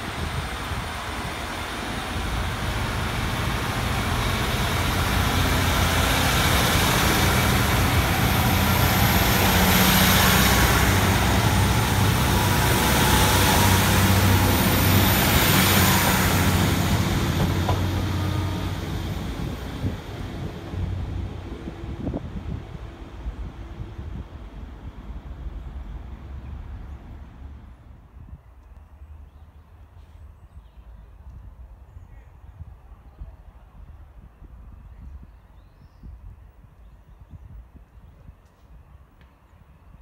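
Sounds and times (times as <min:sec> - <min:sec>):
diesel engines droning: 0:00.0 - 0:27.9
train wheels rumbling on rails: 0:00.0 - 0:31.9.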